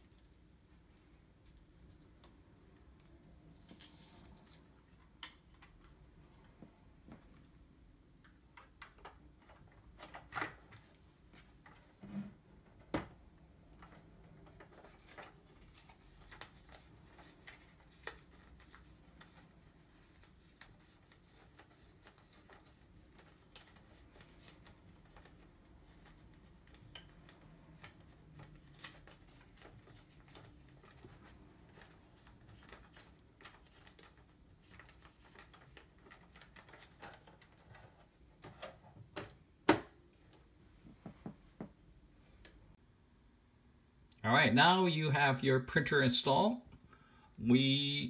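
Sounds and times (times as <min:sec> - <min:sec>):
plastic clicks and rustling: 0:08.2 - 0:11.0.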